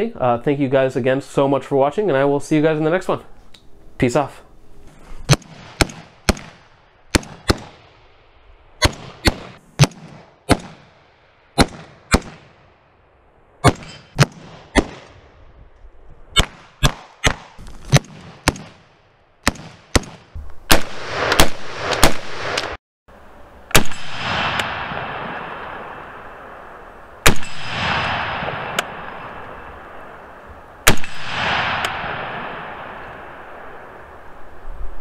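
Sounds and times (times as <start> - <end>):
rifle shots with echoes: 5.3 - 8.1, 8.8 - 12.8, 13.6 - 15.4, 16.4 - 22.8, 23.7 - 26.6, 27.2 - 30.2, 30.8 - 34.1.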